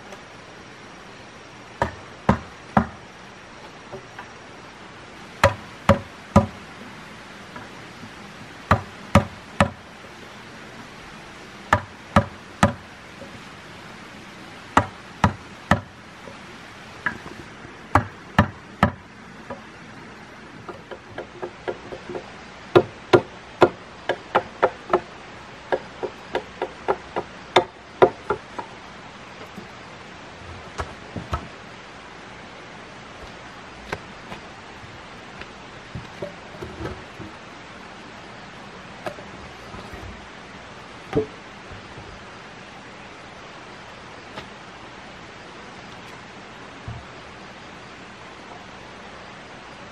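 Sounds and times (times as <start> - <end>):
tool striking wood: 1.8 - 3.0, 5.4 - 6.6, 8.7 - 9.8, 11.7 - 12.8, 14.8 - 15.9, 17.9 - 19.0, 25.7 - 28.7, 41.1 - 41.4.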